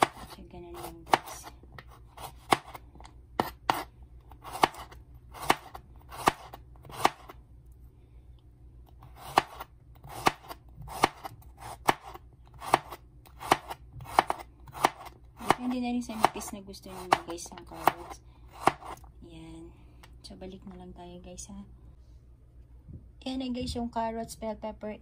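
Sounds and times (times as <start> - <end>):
knife chopping on wooden board: 0.0 - 2.8, 3.4 - 7.3, 9.0 - 19.0.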